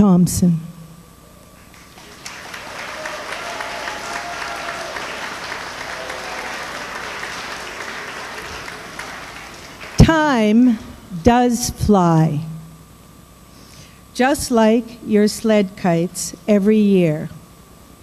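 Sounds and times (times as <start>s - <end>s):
children clapping: 1.7s - 10.1s.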